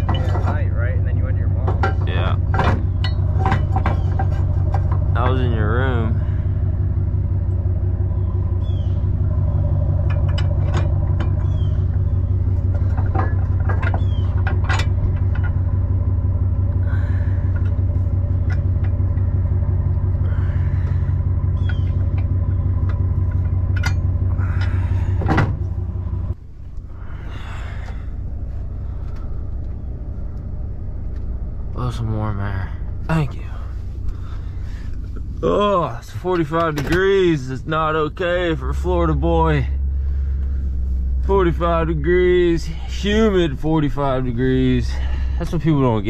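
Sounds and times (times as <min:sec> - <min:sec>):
metal clicks and clanks: 0:00.0 - 0:00.7, 0:01.6 - 0:05.5, 0:09.7 - 0:16.0, 0:17.4 - 0:20.2, 0:21.5 - 0:26.8
pickup truck engine idling: 0:00.0 - 0:46.0.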